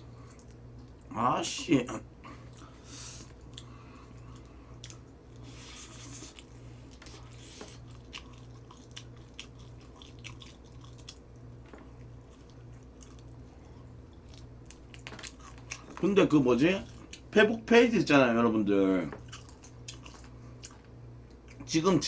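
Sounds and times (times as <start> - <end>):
crunchy fried chicken chewing: 2.4 - 16.1, 19.2 - 21.7.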